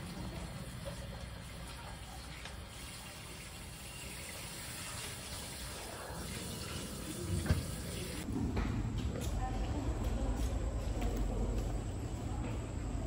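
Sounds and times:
faucet running into sink: 0.0s - 8.2s.

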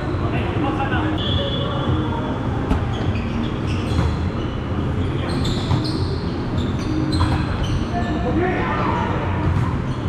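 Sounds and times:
sneaker squeaks on court: 2.7s - 8.2s.

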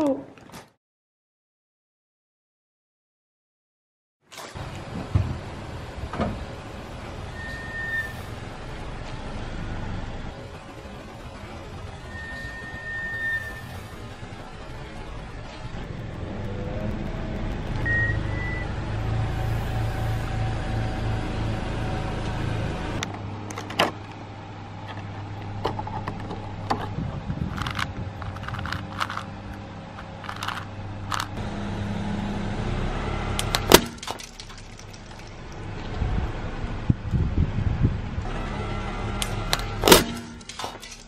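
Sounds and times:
car engine humming: 4.6s - 41.0s
plastic clicks and crinkles: 27.5s - 31.4s.

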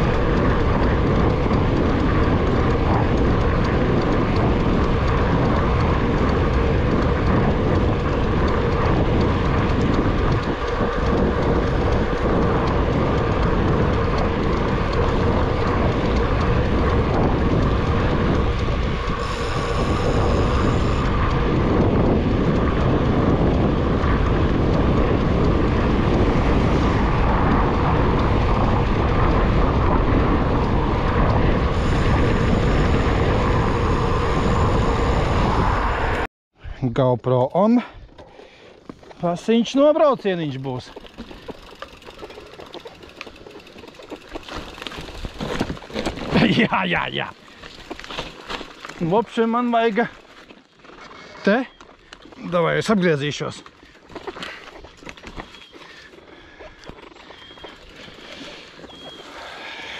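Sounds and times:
constant hum: 0.0s - 36.3s
vehicle rolling and wind noise: 0.0s - 59.9s.

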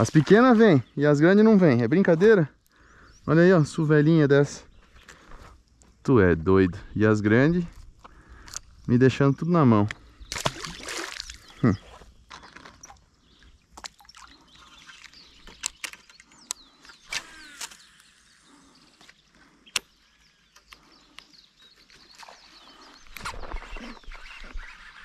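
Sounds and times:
short bird calls: 10.0s - 13.5s, 14.2s - 25.0s.

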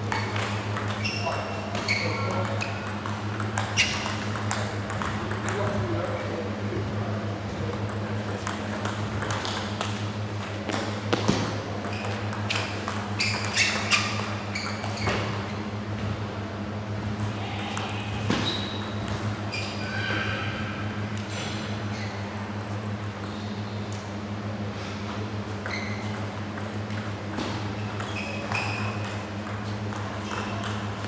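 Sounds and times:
ping pong ball clicking off bats: 0.0s - 6.3s, 6.9s - 15.7s, 22.4s - 24.0s, 25.6s - 31.0s
steady low hum: 0.0s - 31.0s.

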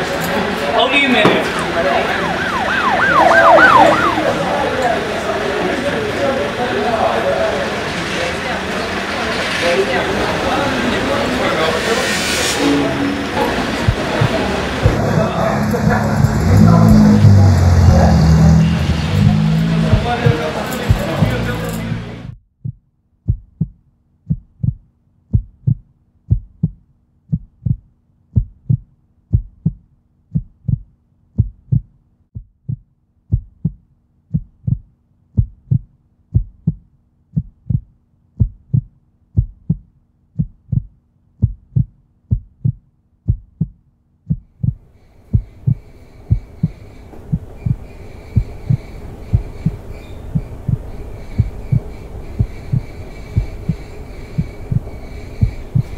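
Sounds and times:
heartbeat thumps: 13.4s - 21.4s, 22.3s - 55.9s.

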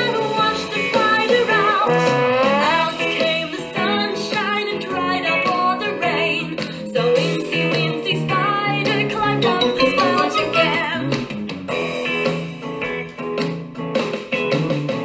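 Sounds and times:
woman singing: 0.0s - 11.1s
plucked guitar: 7.5s - 15.0s.

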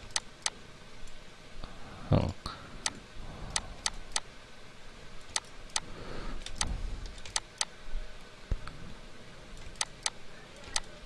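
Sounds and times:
mouse and keyboard clicks: 0.0s - 1.2s, 2.8s - 4.3s, 5.2s - 7.7s, 9.6s - 11.0s
faint low rumble: 0.0s - 10.4s.

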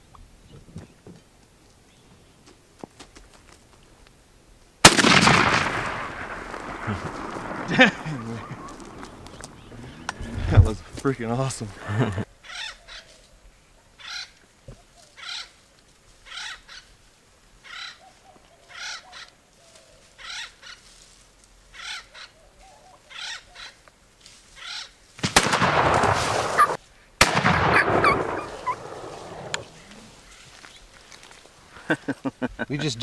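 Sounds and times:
shotgun shots: 4.8s - 9.2s, 25.2s - 29.8s
bird giving harsh calls: 12.4s - 13.1s, 14.0s - 14.4s, 15.2s - 15.5s, 16.3s - 16.9s, 17.6s - 18.1s, 18.7s - 19.3s, 20.2s - 20.8s, 21.8s - 23.8s, 24.6s - 25.0s, 26.4s - 26.8s, 27.7s - 30.6s.

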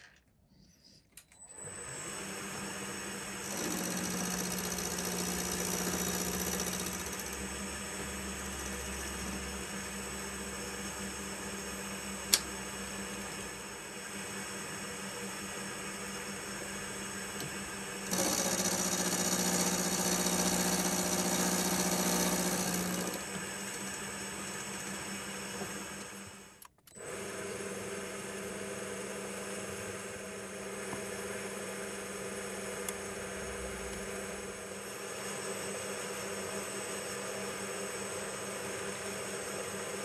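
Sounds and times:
milling machine motor hum: 1.6s - 31.5s
louder busier machine sound: 1.7s - 27.3s.

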